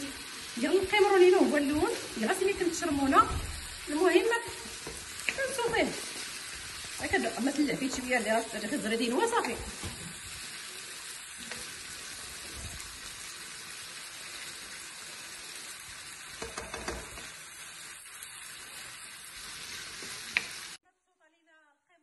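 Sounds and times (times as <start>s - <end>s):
food sizzling in frying pan: 0.0s - 20.8s
spoon knocking against pan: 16.4s - 17.3s.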